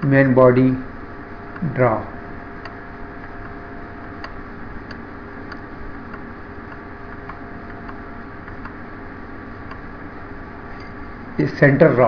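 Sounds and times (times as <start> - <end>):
background hum and hiss: 0.0 - 12.0
faint regular ticking: 2.5 - 8.9, 9.6 - 10.1.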